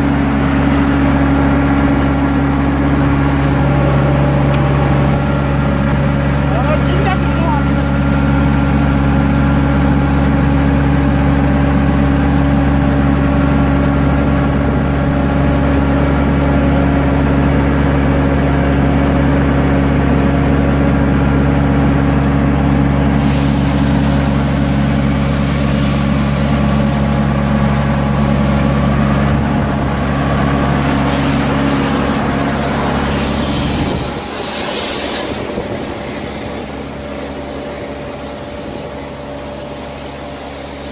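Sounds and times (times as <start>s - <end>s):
diesel engine running steadily: 0.0s - 40.9s
bright hiss: 23.2s - 28.8s, 30.8s - 37.7s.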